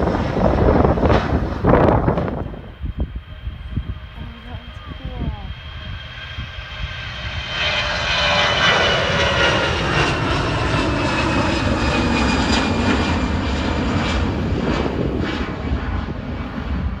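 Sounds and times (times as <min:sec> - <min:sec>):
jet engine roar with whine: 0:00.0 - 0:17.0.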